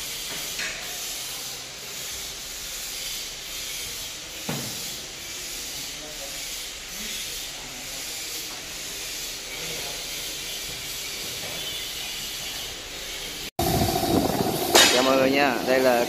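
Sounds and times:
steady background hiss: 12.8 - 16.0
steady hum: 13.1 - 16.0.

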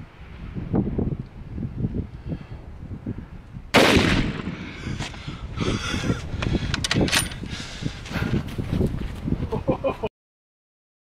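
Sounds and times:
rifle shot with echo: 3.7 - 4.7.

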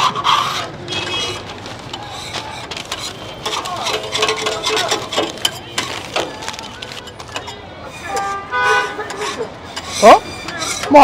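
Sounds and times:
clicks and clatter: 1.1 - 7.6
indistinct background voices: 1.3 - 11.0.

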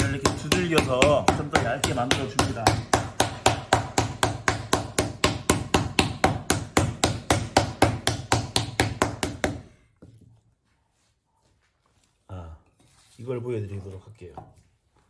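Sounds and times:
wooden paddle beating clay: 0.0 - 10.3.

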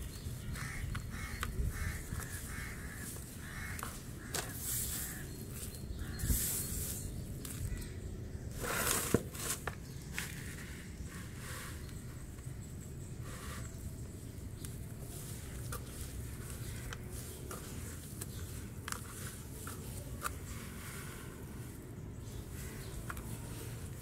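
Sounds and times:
wet sand squelching and crunching: 14.4 - 24.0.

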